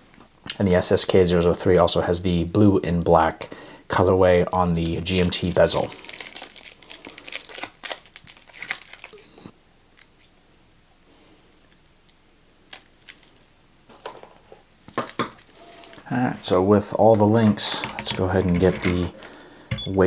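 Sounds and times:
crinkling: 0:04.5 - 0:10.4, 0:11.6 - 0:20.0.

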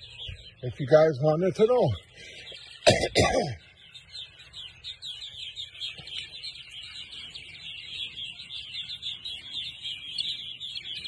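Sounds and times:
birds chirping and chattering: 0:00.0 - 0:11.0.

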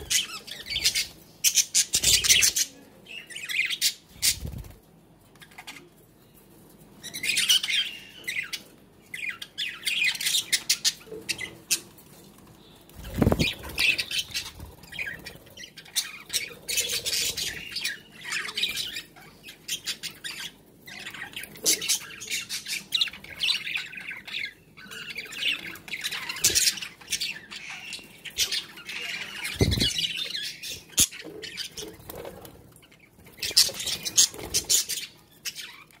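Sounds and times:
budgerigars chattering and squawking: 0:13.0 - 0:36.0.

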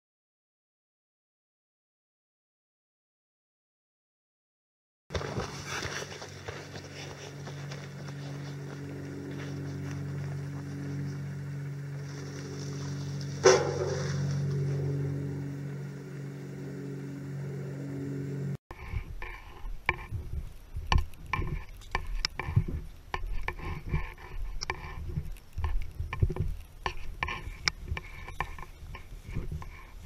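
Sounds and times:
low multi-tone hum: 0:05.1 - 0:30.0
knocks and rustling from walking: 0:18.7 - 0:30.0.

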